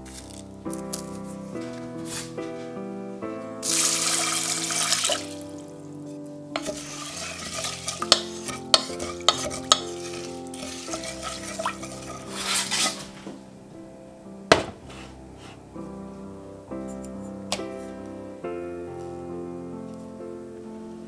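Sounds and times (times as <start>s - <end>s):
water pouring into saucepan: 3.6s - 5.6s, 6.6s - 13.1s
wooden spoon knocking a pan: 6.6s - 13.4s, 14.5s - 15.1s.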